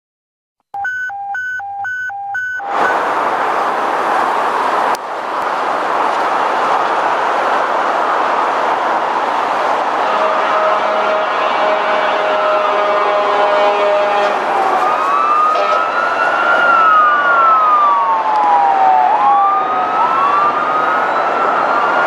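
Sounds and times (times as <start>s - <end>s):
alternating high and low beeps: 0.8s - 3.0s
highway traffic passing: 2.5s - 22.0s.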